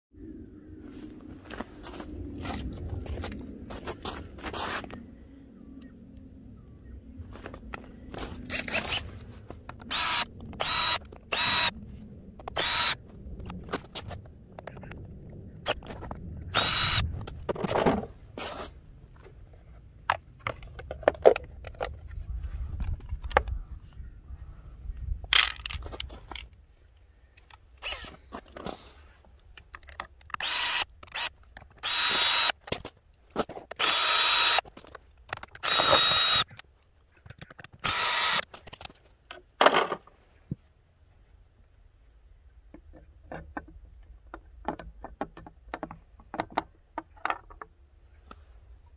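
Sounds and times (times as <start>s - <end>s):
cordless drill whirring: 9.9s - 11.7s, 12.6s - 13.0s, 16.6s - 17.0s, 27.8s - 28.2s, 30.4s - 32.6s, 33.8s - 34.6s, 35.6s - 36.5s, 37.8s - 38.4s
bolts and parts clinking: 25.2s - 26.6s, 29.4s - 33.8s, 34.6s - 37.8s, 38.4s - 40.2s, 42.7s - 47.9s.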